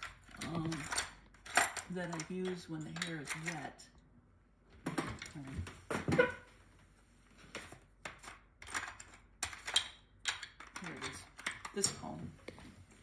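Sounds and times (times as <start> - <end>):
tools clattering on a workbench: 0.0 - 3.7.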